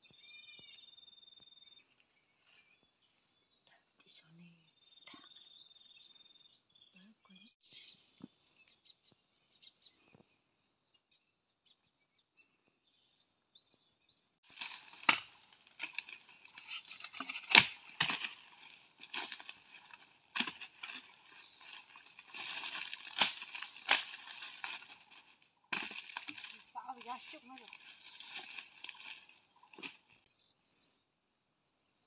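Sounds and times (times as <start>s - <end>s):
faint high chirping: 0.0s - 14.4s
rustling of dry leaves: 14.4s - 30.2s
twigs snapping: 14.5s - 30.2s.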